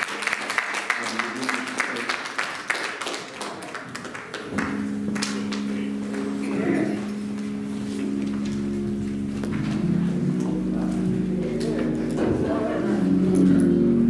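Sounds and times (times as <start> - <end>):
congregation clapping: 0.0 - 7.4, 8.3 - 12.4
instrument holding a chord: 4.5 - 14.0.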